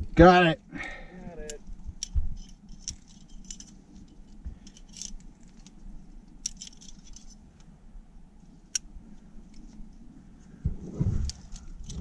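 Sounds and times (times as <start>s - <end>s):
metal climbing hardware clinking: 1.5s - 7.4s.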